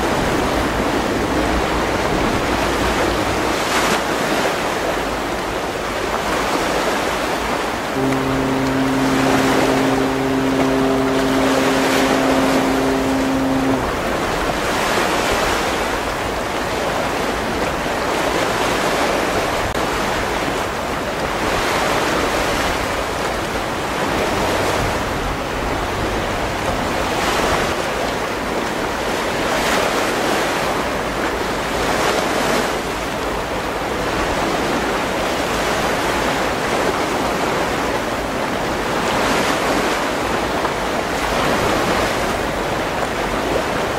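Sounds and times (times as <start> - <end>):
sea noise: 0.0 - 28.8
deep ship's whistle blast: 8.0 - 15.7.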